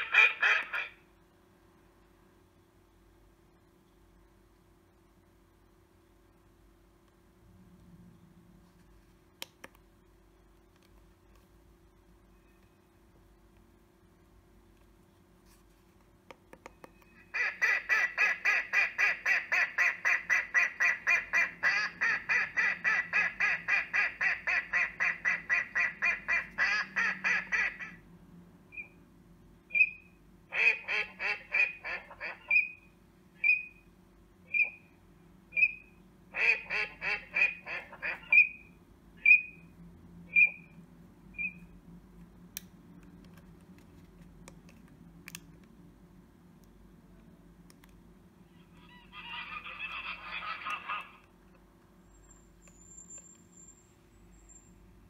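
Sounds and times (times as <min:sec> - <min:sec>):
electronic duck quacks: 0:00.0 - 0:01.0, 0:29.7 - 0:32.8, 0:35.6 - 0:39.6, 0:48.5 - 0:51.3.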